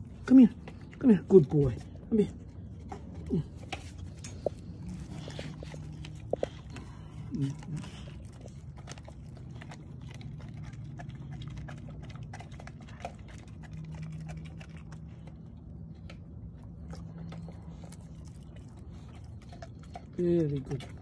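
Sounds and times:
dog gnawing on chew: 0.0s - 21.0s
low steady hum: 0.0s - 21.0s.

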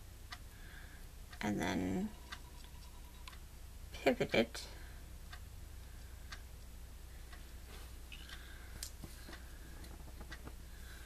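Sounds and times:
steady low hum: 0.0s - 11.0s
paper ticks and taps: 8.8s - 10.6s.

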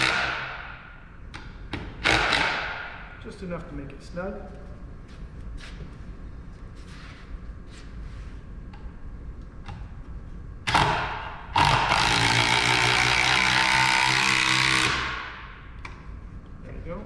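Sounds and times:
screw gun driving screw into wood: 2.0s - 2.8s.

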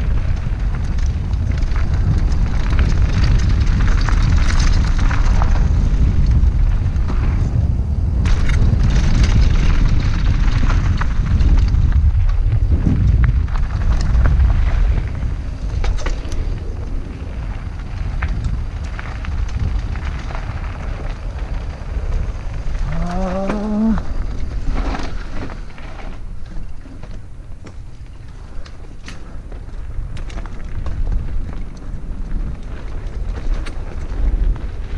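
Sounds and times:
mountain bike rattling and clicking: 0.0s - 34.9s
tyres on dirt trail: 0.0s - 34.9s
wind rumbling on microphone: 0.0s - 34.9s
rising voice-like hum: 22.8s - 24.1s.

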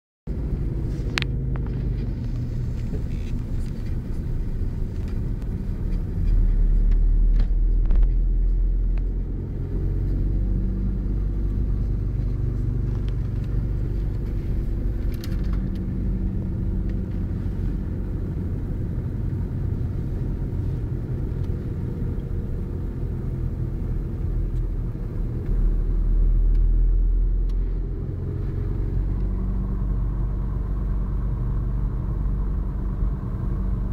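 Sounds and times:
car engine and road noise: 0.3s - 33.9s.

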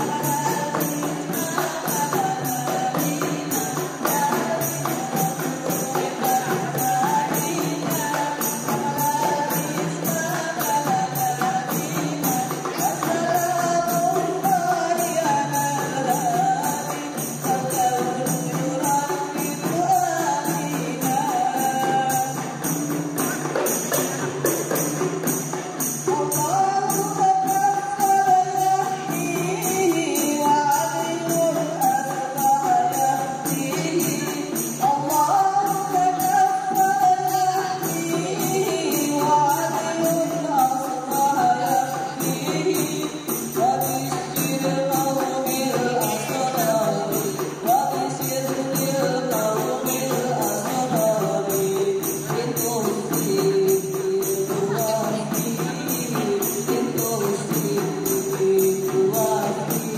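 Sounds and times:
hand-struck frame drums beat: 0.0s - 59.9s
women singing: 0.0s - 59.9s.

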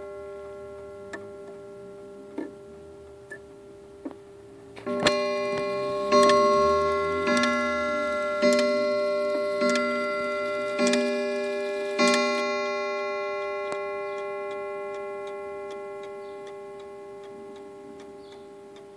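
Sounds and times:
clock striking a wire gong: 4.8s - 18.7s
clock ticking: 4.8s - 18.9s.

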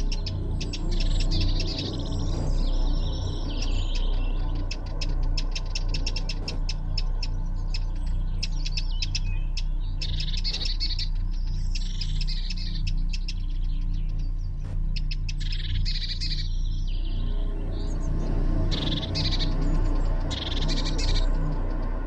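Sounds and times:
songbirds ticking and warbling: 0.0s - 22.0s
steady low hum: 0.0s - 22.0s.

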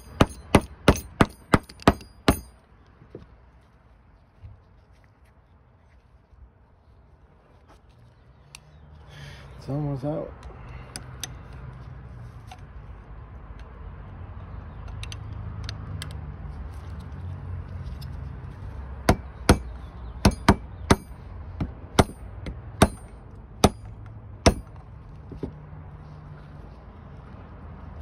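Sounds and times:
hammer tapping a metal punch: 0.0s - 2.5s, 20.3s - 21.1s, 24.5s - 24.7s.

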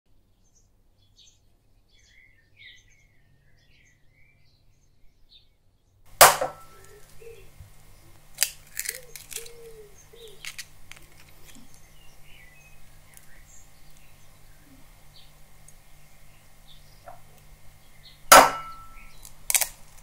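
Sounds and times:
sharp knock: 6.2s - 6.8s, 18.3s - 19.0s
eggshell cracking: 8.1s - 11.8s, 18.3s - 20.0s.

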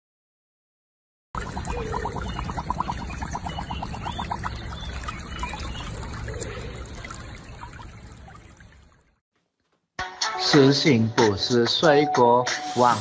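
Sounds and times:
water trickling and sloshing: 1.4s - 9.2s.

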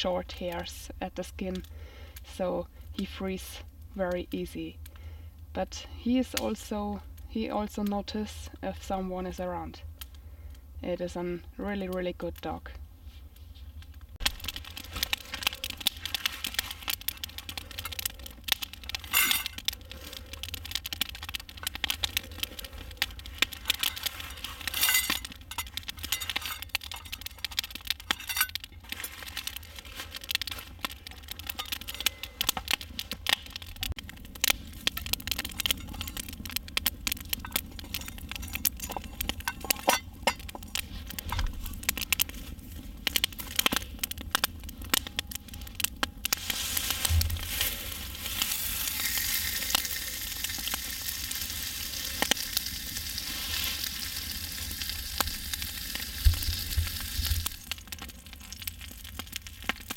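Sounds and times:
campfire crackling: 0.0s - 59.9s.

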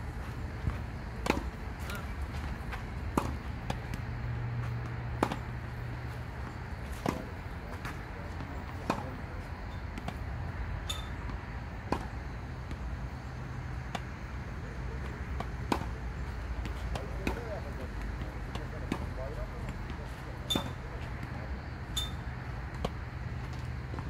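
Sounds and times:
steady low hum: 0.0s - 24.0s
rackets striking tennis ball: 0.6s - 24.0s.

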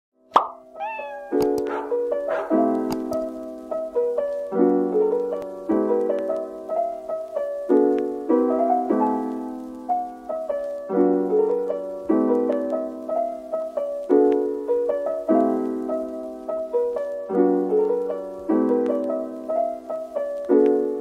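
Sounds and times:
soft keyboard chords: 0.6s - 21.0s.

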